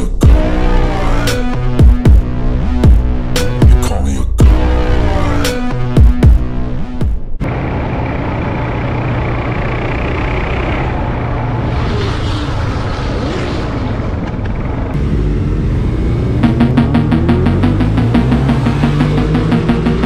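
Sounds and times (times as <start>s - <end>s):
motorcycle engines idling: 7.4s - 10.9s
motorcycle engine running: 7.4s - 11.2s, 14.6s - 20.0s
motorcycle engine revving: 7.4s - 20.0s
wind rush: 11.0s - 15.0s.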